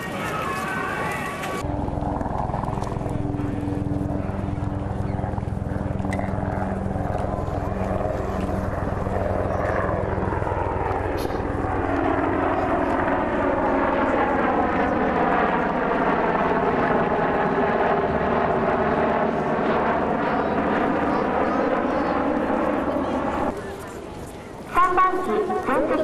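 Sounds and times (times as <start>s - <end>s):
helicopter rotor beat: 0.0s - 26.0s
jet turbine whine: 0.0s - 26.0s.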